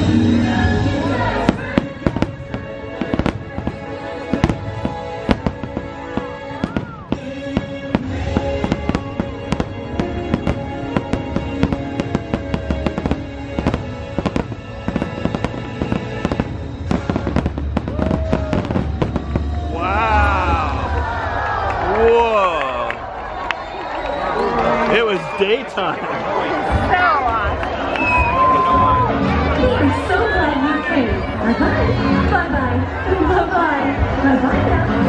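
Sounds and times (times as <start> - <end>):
music playing: 0.0 - 35.0
fireworks bangs and crackles: 1.0 - 21.8, 26.6 - 32.0.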